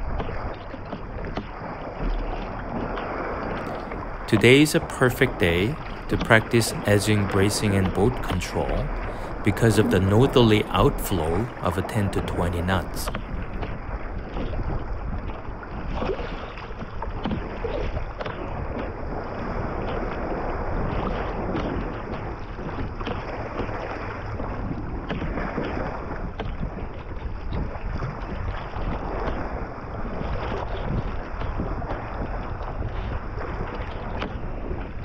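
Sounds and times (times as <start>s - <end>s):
water splashing against kayak: 0.0s - 35.0s
wind buffeting microphone: 0.0s - 35.0s.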